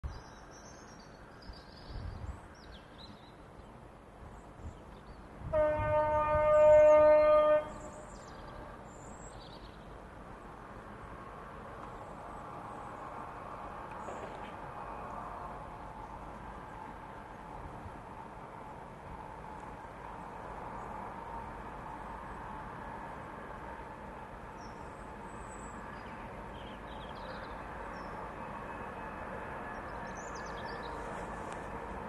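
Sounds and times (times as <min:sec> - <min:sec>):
train rumbling: 0:01.2 - 0:32.0
locomotive horn: 0:05.5 - 0:08.7.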